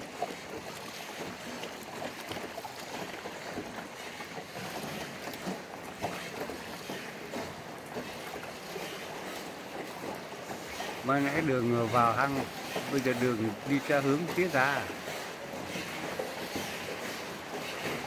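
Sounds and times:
water washing around boat: 0.0s - 18.0s.

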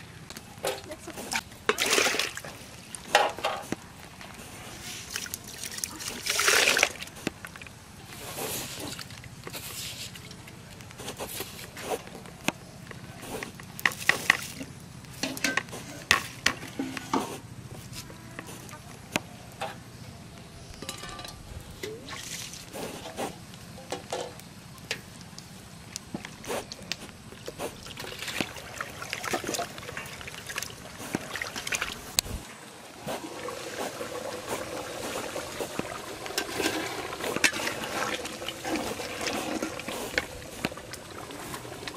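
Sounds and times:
water sloshing in a plastic bucket: 0.6s - 12.3s, 21.8s - 23.4s, 26.2s - 41.9s.

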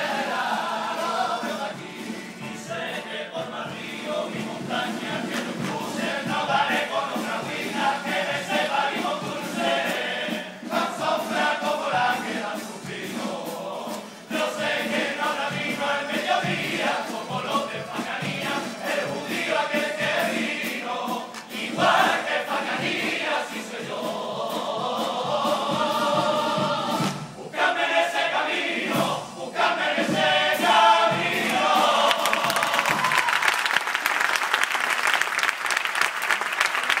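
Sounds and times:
choir singing: 0.0s - 33.5s
audience applause and cheers: 31.4s - 37.0s.

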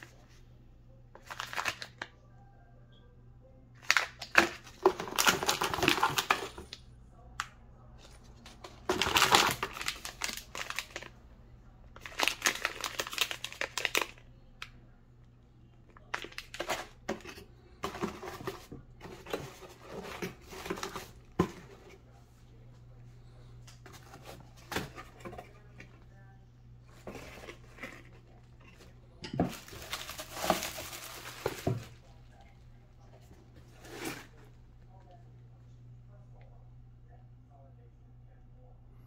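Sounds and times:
plastic packaging crinkling: 1.2s - 2.1s, 3.8s - 6.7s, 8.4s - 11.2s, 12.0s - 14.2s, 15.9s - 22.0s, 26.9s - 32.6s.

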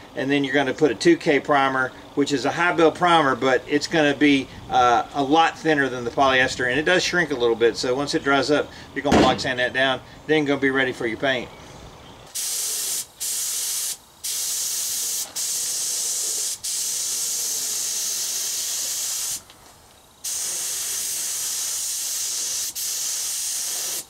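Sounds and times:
spray gun hissing: 12.3s - 19.5s, 20.2s - 24.0s.

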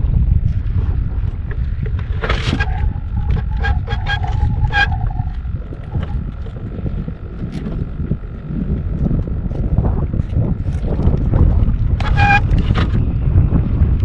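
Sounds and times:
wind buffeting microphone: 0.0s - 14.0s
short high-pitched squeaks: 2.2s - 6.5s, 12.0s - 12.9s
held tone: 2.5s - 6.6s.

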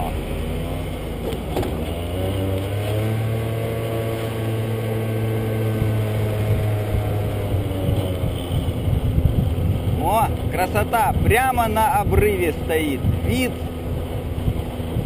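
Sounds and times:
road and wind noise: 0.0s - 15.0s
scooter engine running: 0.0s - 15.0s.

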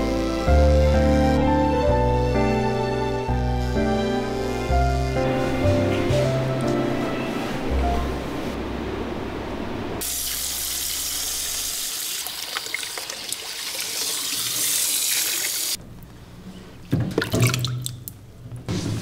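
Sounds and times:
shower hose spraying water: 10.0s - 15.8s.

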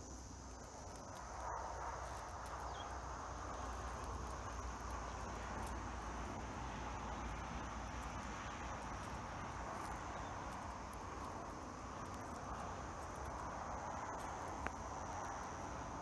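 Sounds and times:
cicada buzzing: 0.0s - 16.0s.

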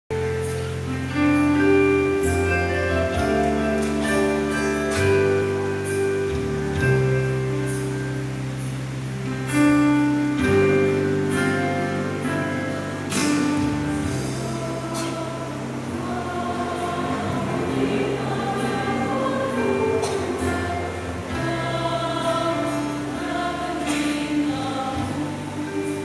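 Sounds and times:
instrumental church music: 0.1s - 26.0s.

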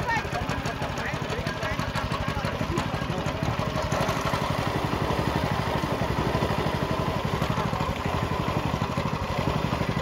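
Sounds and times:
small boat engine running: 0.0s - 10.0s.

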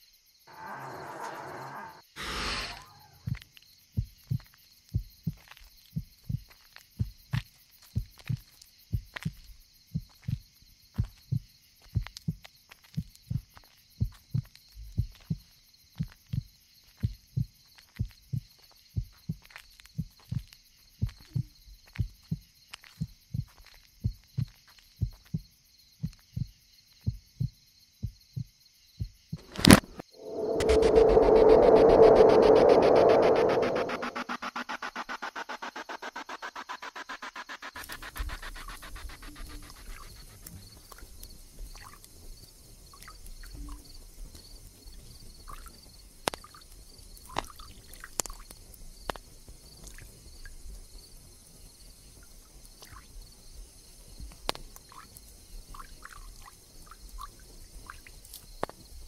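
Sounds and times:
heartbeat thumps: 4.0s - 5.4s, 6.0s - 7.4s, 8.0s - 12.4s, 13.0s - 26.5s
hissing humming drone: 29.4s - 39.4s.

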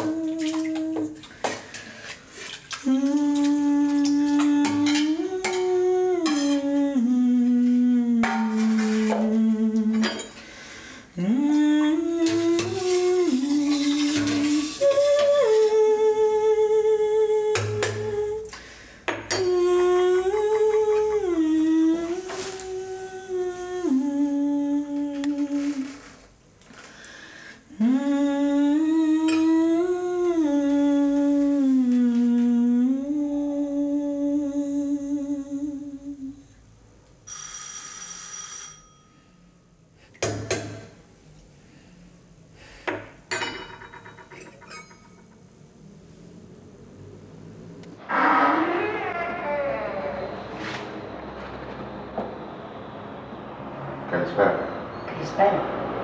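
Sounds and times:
woman humming: 0.0s - 1.2s, 2.8s - 10.2s, 11.2s - 18.5s, 19.3s - 26.0s, 27.7s - 36.5s.

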